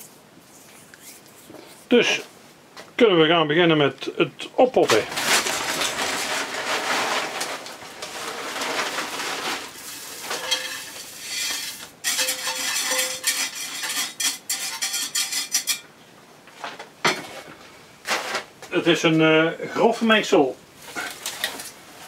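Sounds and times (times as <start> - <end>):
gritty soil rattling in scoop: 4.9 - 15.3.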